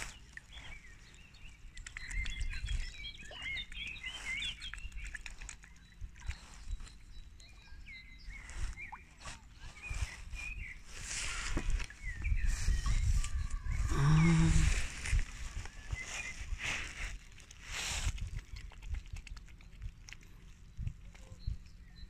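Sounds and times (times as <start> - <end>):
small birds chirping: 0.0 - 22.0
low microphone rumble: 11.1 - 17.1.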